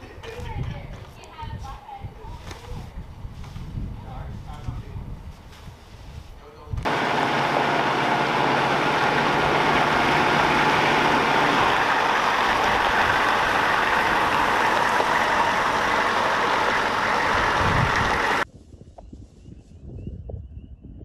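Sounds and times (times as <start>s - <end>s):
diesel engine idling: 6.9s - 18.4s
low hum: 6.9s - 18.4s.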